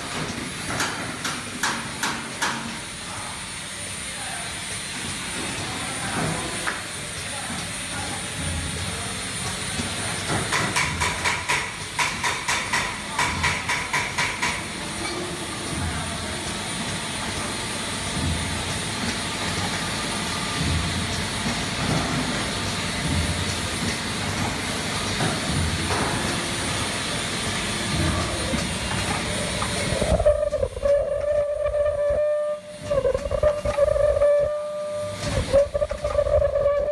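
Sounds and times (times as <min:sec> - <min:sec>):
packing machine humming: 0:14.6 - 0:36.9.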